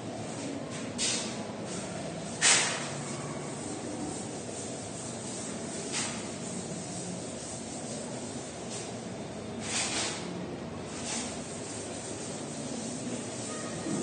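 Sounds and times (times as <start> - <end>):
duster brushing on blackboard: 2.4 - 8.9, 10.9 - 14.0.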